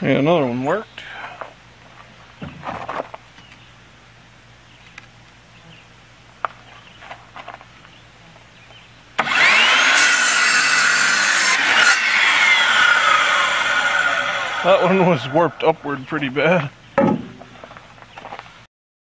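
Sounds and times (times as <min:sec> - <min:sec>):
saw blade cutting wood: 0:09.2 - 0:15.5
miter saw motor whine: 0:09.2 - 0:15.8
board knocking: 0:17.0 - 0:17.6.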